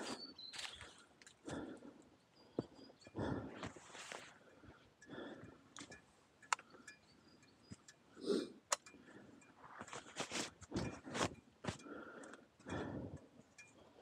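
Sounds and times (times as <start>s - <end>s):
boots crunching on gravel: 0.0s - 1.0s
grunt-like breath: 3.2s - 3.8s, 11.8s - 13.2s.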